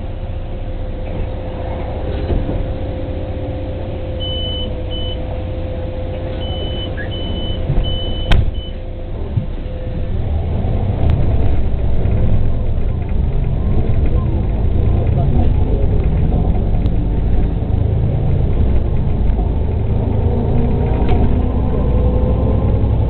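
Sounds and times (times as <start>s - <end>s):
bus engine idling: 0.0s - 23.0s
bus doors shutting: 1.0s - 22.9s
door warning beeps: 4.2s - 5.2s, 6.4s - 8.8s.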